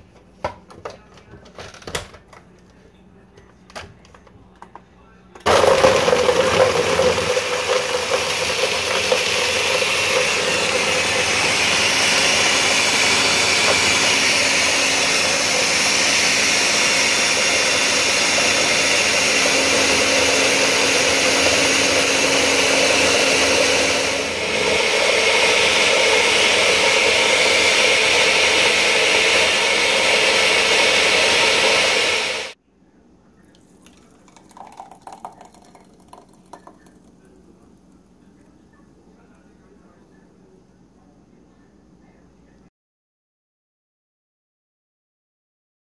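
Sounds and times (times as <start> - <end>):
blender running at high speed: 5.5 - 32.6.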